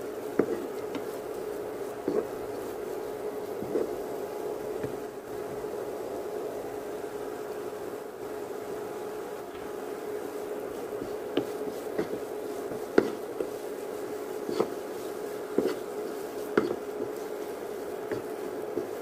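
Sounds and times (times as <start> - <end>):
steady hum: 0.0 - 19.0
wooden spatula knocking against pan: 0.4 - 1.1, 11.3 - 13.6, 16.5 - 17.2.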